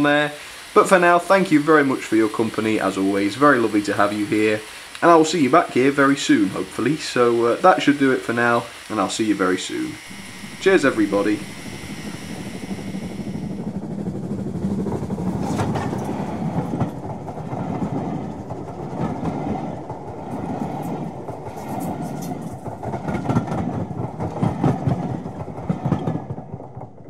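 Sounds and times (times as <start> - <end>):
train rumbling on track: 10.0 - 27.0.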